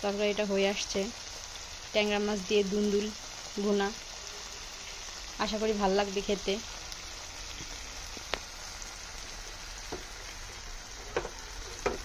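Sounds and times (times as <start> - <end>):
food sizzling in frying pan: 0.0 - 12.0.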